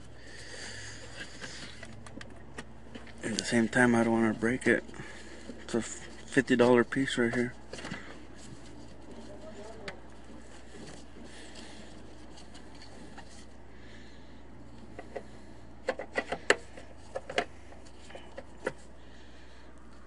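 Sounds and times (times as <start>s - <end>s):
sharp plastic clicks and knocks: 14.9s - 17.5s.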